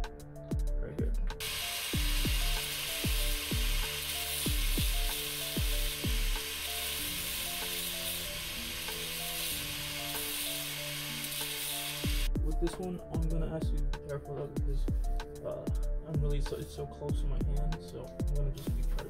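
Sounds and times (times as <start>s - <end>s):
music with kick-drum beat: 0.0s - 6.6s, 12.0s - 19.0s
angle grinder grinding metal: 1.4s - 12.3s.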